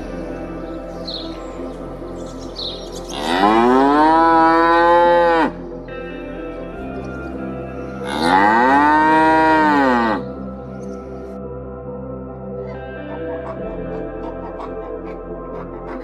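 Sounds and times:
soft background music: 0.0 - 16.0
cattle mooing: 3.2 - 5.6, 8.0 - 10.2.

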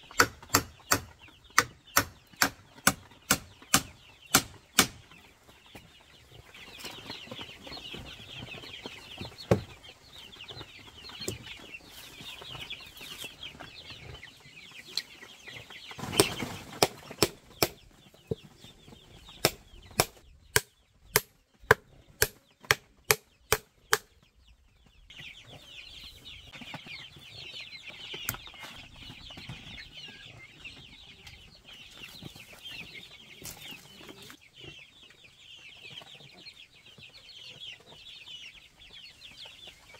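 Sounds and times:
chickens and chicks peeping and clucking: 0.0 - 39.9
hammer striking wood: 0.2 - 5.0, 19.4 - 24.1.

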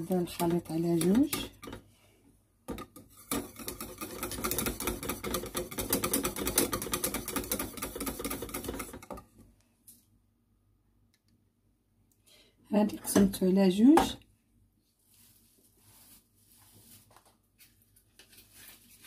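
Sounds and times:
whisk clicking against saucepan: 3.2 - 9.2.

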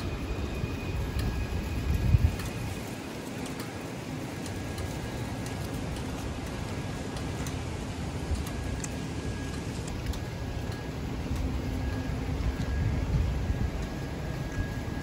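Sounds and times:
traffic rumble: 0.0 - 15.0
faint clicks: 8.3 - 12.8.

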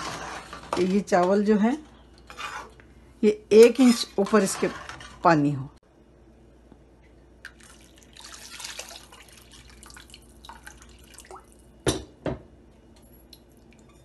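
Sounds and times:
water pouring and splashing: 7.5 - 11.7.

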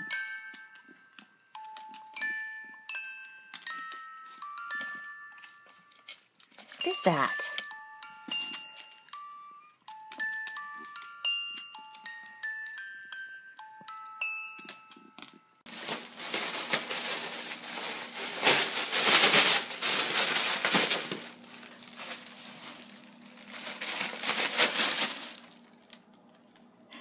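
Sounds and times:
music box playing: 0.0 - 15.6
plastic packing crinkling: 15.7 - 26.0.

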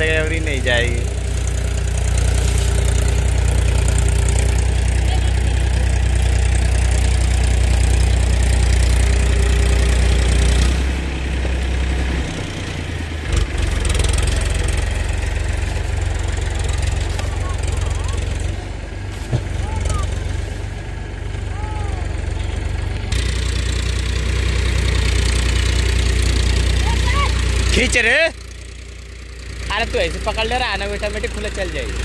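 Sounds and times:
tractor diesel engine running: 0.0 - 32.0
short thump: 19.2 - 19.6.

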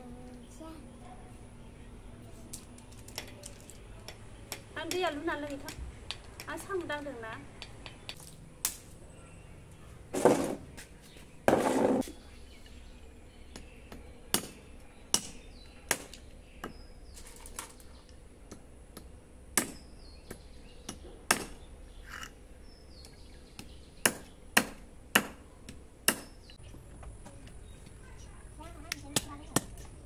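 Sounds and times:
knife chopping shells on brick: 7.6 - 8.9, 13.5 - 16.8, 18.4 - 22.4, 23.0 - 26.5, 28.9 - 30.0.

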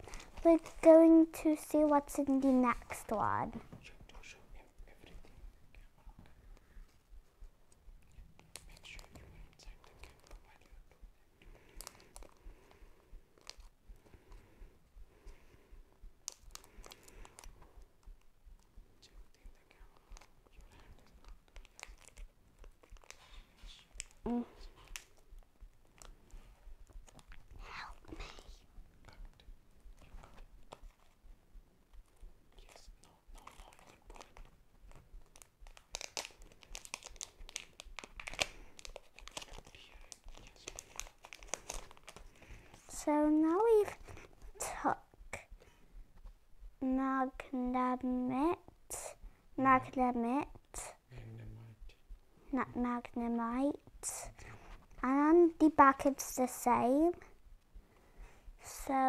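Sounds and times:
packaging crinkling and tearing: 21.2 - 24.2, 33.4 - 42.5.

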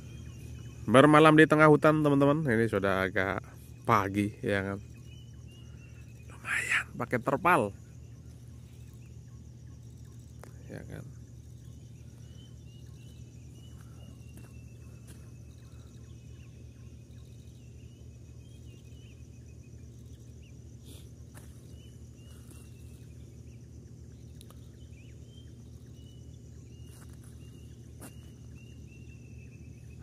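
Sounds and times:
high pulsing insect trill: 0.0 - 30.0
lower wavering chirping call: 0.0 - 30.0
faint clicks: 24.3 - 24.6.

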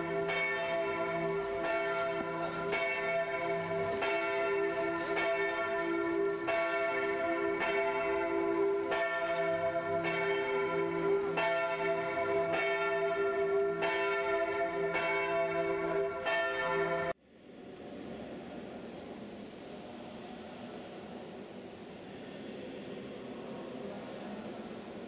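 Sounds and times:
church bells pealing: 0.0 - 17.2.

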